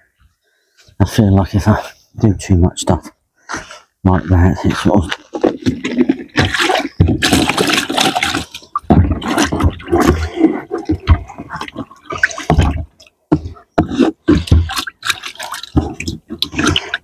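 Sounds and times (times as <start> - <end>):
water sloshing and splashing: 4.6 - 17.0
bucket knocking: 5.2 - 17.0.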